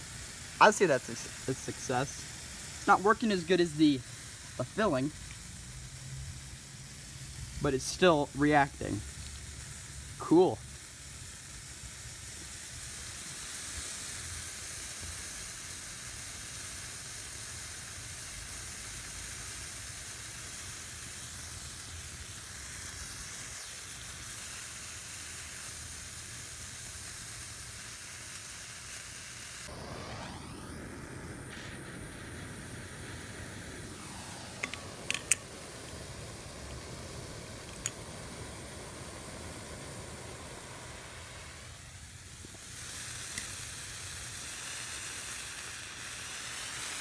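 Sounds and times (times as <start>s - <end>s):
chemical mixture burning with hiss: 0.0s - 47.0s
sharp pops: 29.6s - 44.9s.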